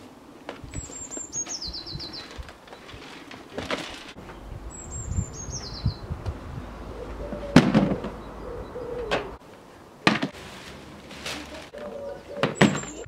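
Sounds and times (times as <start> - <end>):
bird trilling: 0.8 - 2.4, 4.3 - 6.1, 6.7 - 9.4, 11.8 - 13.0
knocks and bumps of objects: 7.4 - 8.2, 10.0 - 10.7, 12.4 - 13.0.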